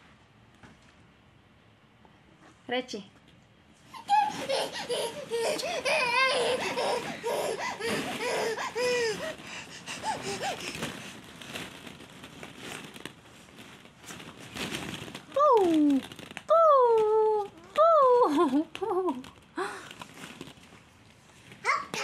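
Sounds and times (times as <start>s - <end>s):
toddlers squealing and laughing: 3.9s - 10.7s
plastic balls clattering: 5.2s - 22.0s.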